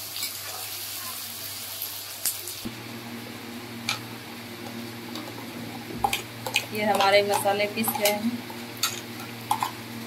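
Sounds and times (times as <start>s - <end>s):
onions sizzling in hot oil: 0.0s - 10.0s
spatula clicking: 6.0s - 9.8s.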